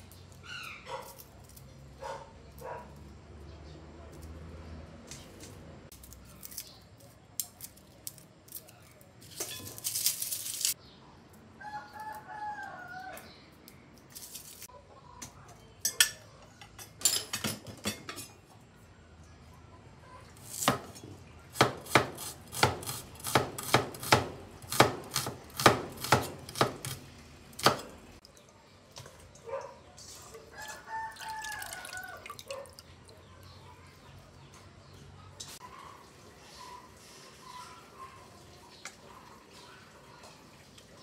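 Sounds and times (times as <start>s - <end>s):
rooster crowing: 11.6s - 13.2s, 30.5s - 32.6s
cleaver chopping on wooden board: 21.6s - 27.0s.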